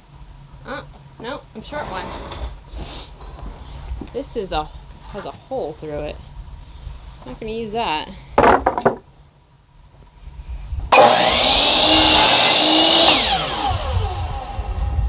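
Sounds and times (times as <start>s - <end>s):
board knocking when handled: 8.4s - 9.1s
miter saw cutting wood: 10.9s - 15.0s.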